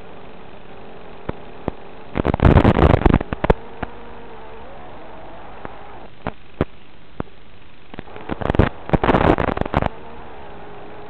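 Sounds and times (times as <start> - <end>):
crackling static: 0.0 - 11.0
steady hiss and hum: 0.0 - 11.0
sharp clicks: 1.3 - 4.0
faint shifting tone: 2.7 - 7.4, 8.0 - 11.0.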